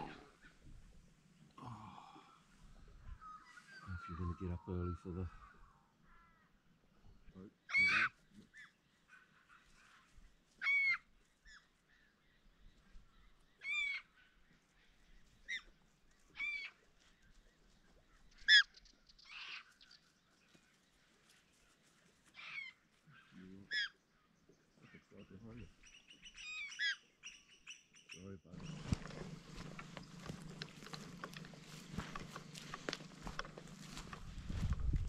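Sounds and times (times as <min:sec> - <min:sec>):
crow cawing: 0:05.3 - 0:06.6.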